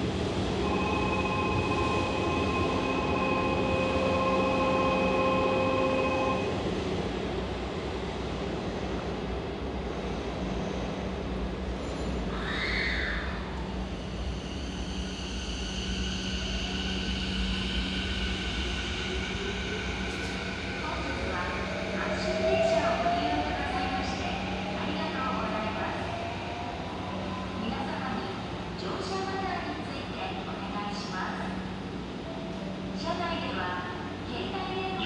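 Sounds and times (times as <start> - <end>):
steady electronic tones: 0.6 - 6.5.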